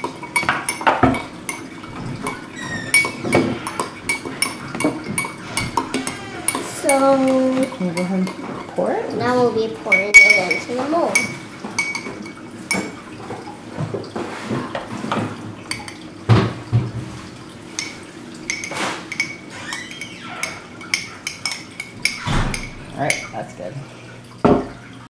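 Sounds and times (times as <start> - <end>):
metal spoon clinking on glass: 9.9 - 12.9, 17.8 - 19.4.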